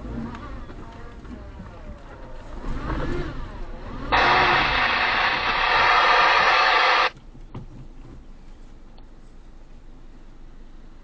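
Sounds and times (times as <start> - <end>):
loud static hiss: 4.1 - 7.1.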